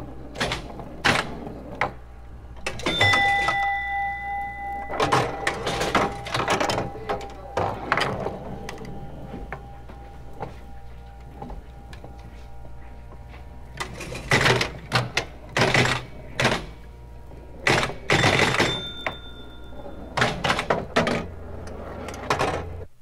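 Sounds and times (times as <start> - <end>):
pinball machine clattering: 0.0 - 12.4, 13.7 - 22.9
steady low hum: 0.0 - 23.0
high bell tone: 2.8 - 11.3, 18.6 - 20.2.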